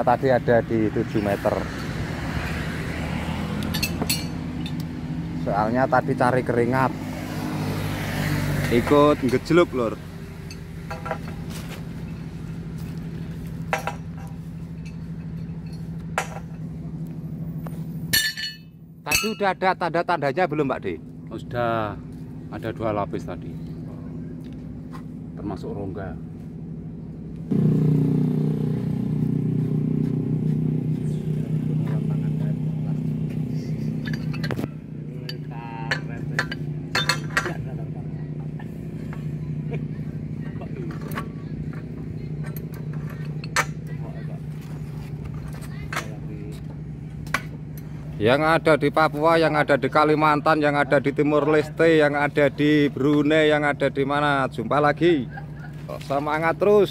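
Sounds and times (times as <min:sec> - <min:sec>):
sharp metal clinks: 0:03.6 - 0:04.8, 0:18.1 - 0:19.6
pipe wrenches clinking on pipe: 0:03.7 - 0:04.8, 0:18.1 - 0:19.5, 0:34.0 - 0:34.7, 0:35.3 - 0:37.6
metallic rattle: 0:34.0 - 0:37.6.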